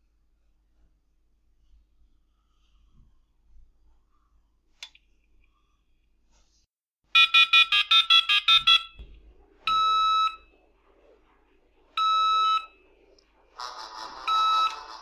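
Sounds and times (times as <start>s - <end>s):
mobile phone ringtone: 7.2s - 9.0s, 14.0s - 15.0s
touch-tone dialling beeps: 7.2s - 9.0s, 14.2s - 15.0s
short steady beeps: 7.2s - 10.5s, 12.0s - 12.8s, 14.0s - 15.0s.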